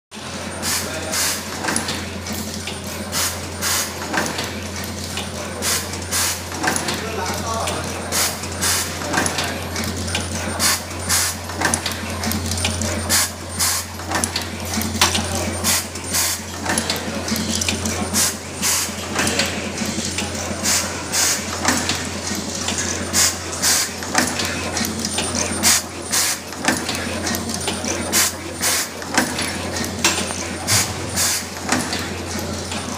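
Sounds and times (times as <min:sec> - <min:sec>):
mechanical clicks and clacks: 0:00.2 - 0:32.9.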